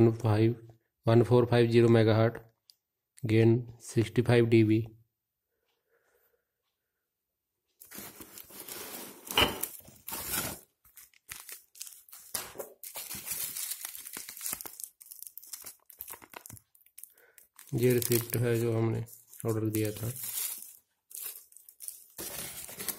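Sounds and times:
plastic and paper crinkling: 0:07.8 - 0:22.9.

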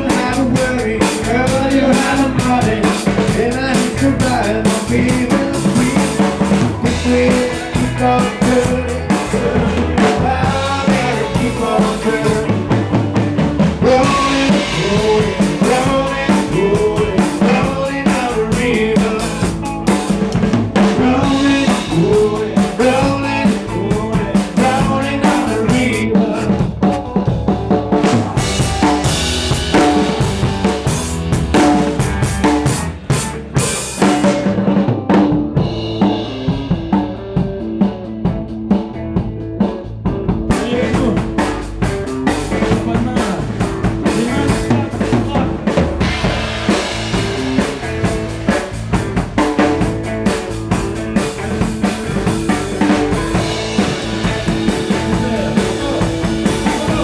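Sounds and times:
drum kit hits: 0:00.0 - 0:57.0
live rock band playing: 0:00.0 - 0:57.0.

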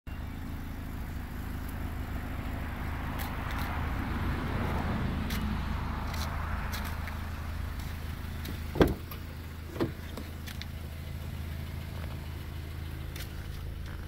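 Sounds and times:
car engine idling: 0:00.1 - 0:14.0
light clicks and scuffs: 0:03.1 - 0:03.8, 0:05.2 - 0:09.2, 0:09.8 - 0:10.8, 0:13.0 - 0:14.0.

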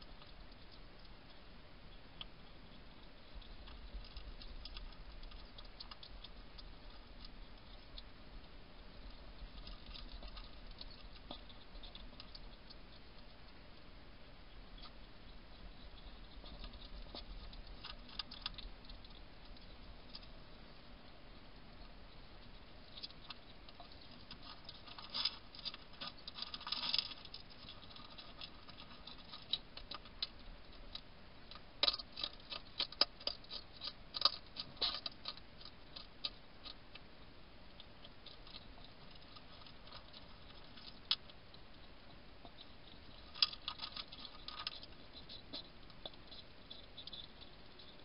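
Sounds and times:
hedgehog crunching food pellets: 0:00.0 - 0:48.0.

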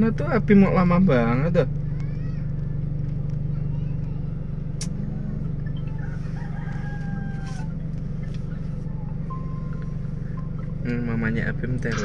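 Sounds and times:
low hum inside car: 0:00.0 - 0:12.0
rooster crowing: 0:05.9 - 0:07.9.

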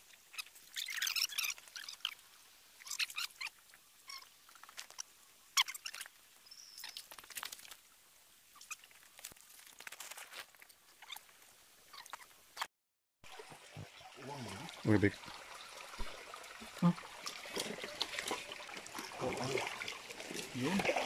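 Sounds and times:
footsteps on stones and dry leaves: 0:09.0 - 0:11.4.

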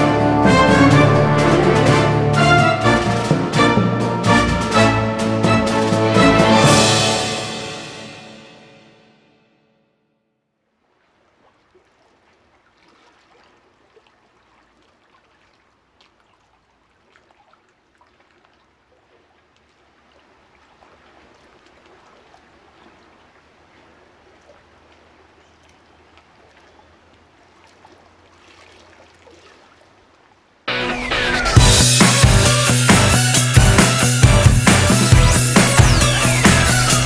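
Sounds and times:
trickling water with drips: 0:10.8 - 0:30.6.

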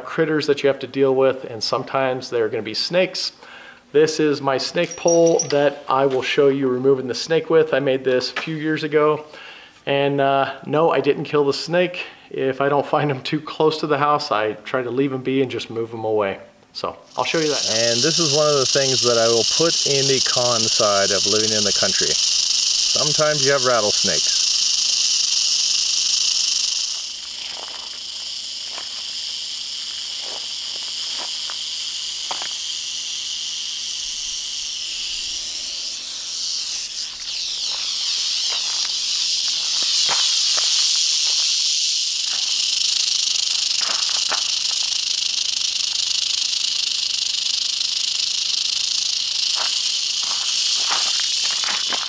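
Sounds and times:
rattlesnake rattling: 0:04.7 - 0:06.4, 0:17.1 - 0:52.0
light footsteps: 0:30.1 - 0:31.6, 0:49.6 - 0:52.0
rustles in dry grass: 0:49.5 - 0:52.0.

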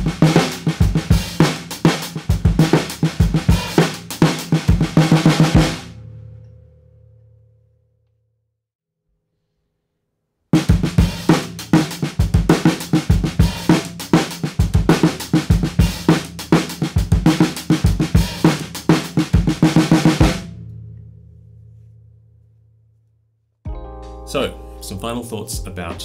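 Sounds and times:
snare drum fast strokes: 0:00.0 - 0:05.8, 0:10.6 - 0:20.4.

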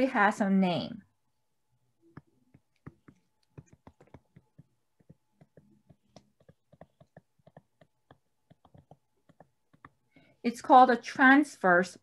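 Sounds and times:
stylus tapping on tablet: 0:02.0 - 0:10.4.

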